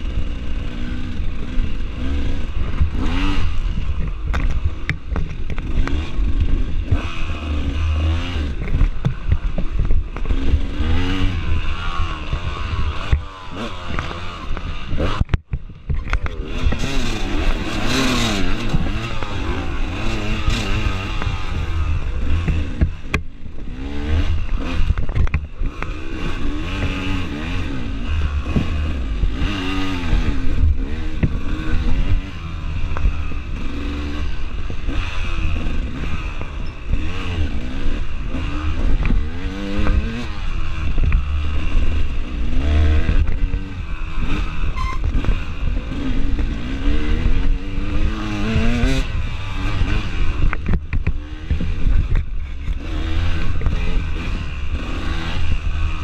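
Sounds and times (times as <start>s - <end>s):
dirt bike engine revving: 0.0s - 56.0s
bike knocks and rattles: 8.2s - 23.8s.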